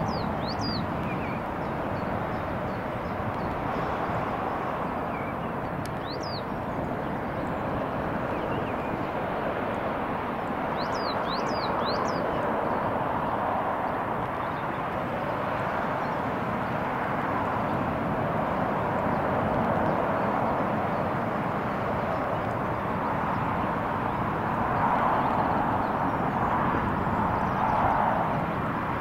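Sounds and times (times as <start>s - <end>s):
small bird chirping: 0.0s - 1.4s, 5.0s - 6.6s, 10.8s - 12.4s
jet engines running: 0.0s - 29.0s.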